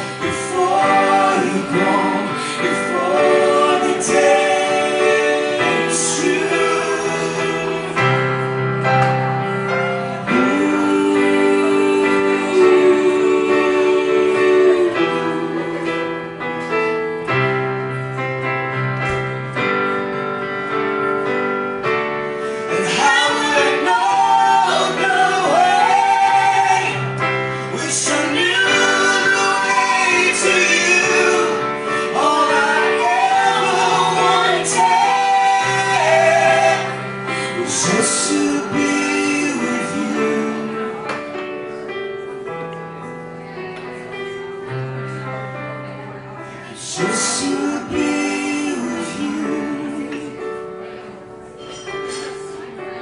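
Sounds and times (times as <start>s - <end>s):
woman singing with vibrato: 22.7s - 27.2s.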